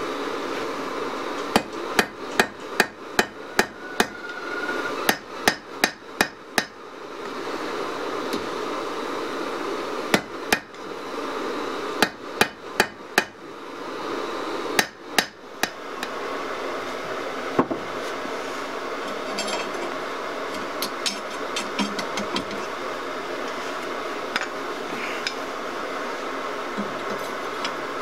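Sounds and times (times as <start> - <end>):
hammer striking steel on anvil: 1.5 - 4.4, 5.1 - 6.7.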